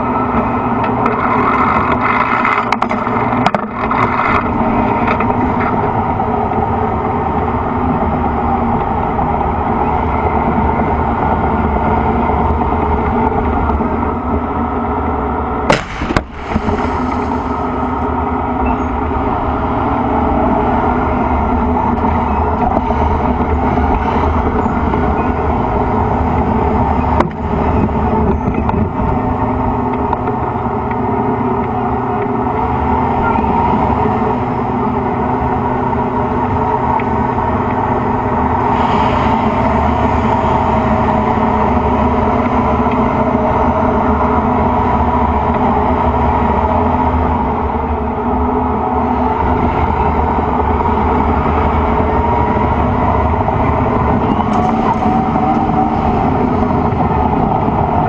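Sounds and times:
tank diesel engine droning: 0.0 - 58.0
sharp bang: 15.7 - 18.0.

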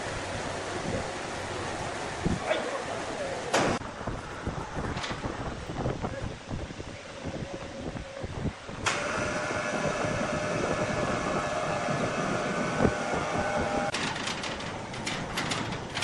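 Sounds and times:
electric hoist whining: 8.7 - 16.0
rattling clicks: 13.9 - 16.0.

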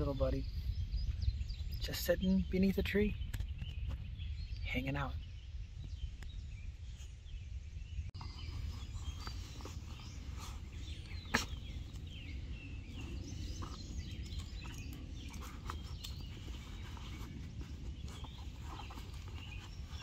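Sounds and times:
birds chirping: 0.0 - 20.0
steady low rumble: 0.0 - 20.0
dog rummaging in fabric bag: 12.9 - 20.0.

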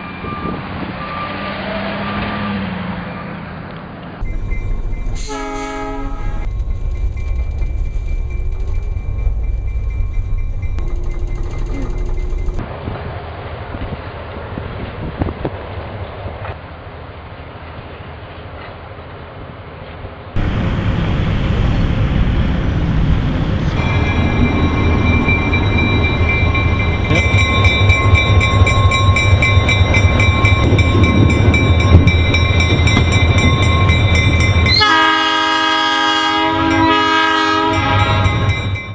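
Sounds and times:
locomotive heavy low rumble: 4.2 - 12.8, 20.4 - 35.0
train air horn chord: 5.2 - 6.5, 34.7 - 38.6.

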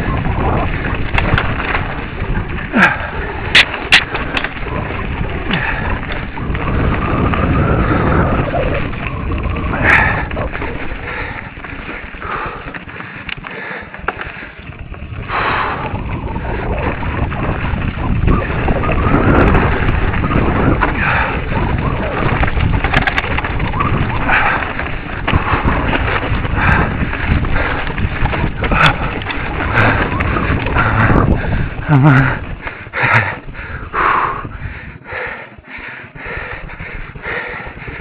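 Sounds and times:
wind on microphone: 0.0 - 12.8, 14.3 - 35.4, 36.0 - 38.0
camera handling rumble: 3.4 - 9.7, 16.9 - 33.2.

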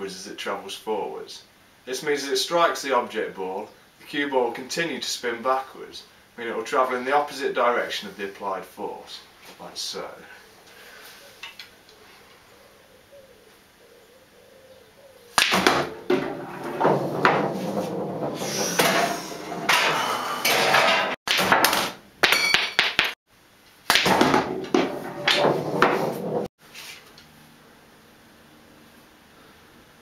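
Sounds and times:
cue striking ball: 15.4 - 20.0, 23.9 - 26.5
pool balls knocking and rolling: 15.4 - 23.2, 23.9 - 26.5.

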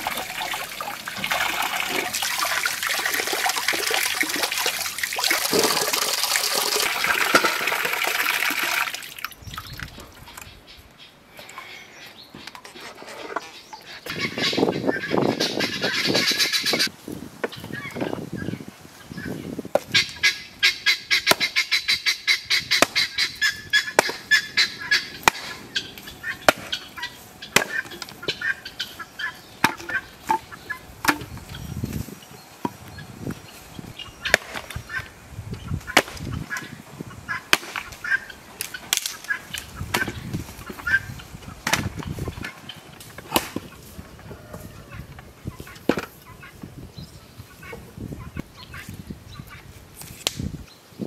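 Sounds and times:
fowl calling rapidly: 13.8 - 16.9, 19.1 - 30.9, 35.8 - 41.3
axe chopping wood: 21.2 - 21.6, 22.8 - 23.1, 23.9 - 24.4, 25.2 - 25.6, 26.4 - 26.8, 27.5 - 28.2, 34.3 - 34.8, 35.9 - 36.3, 37.5 - 38.0, 41.6 - 42.1, 43.2 - 43.7
wood splitting thud: 27.6 - 28.1, 41.6 - 42.1, 43.2 - 43.7.

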